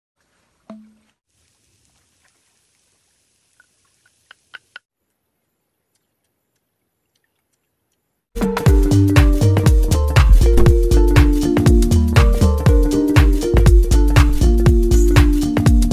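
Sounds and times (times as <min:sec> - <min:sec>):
electronic music with a beat: 0:08.4 - 0:15.9.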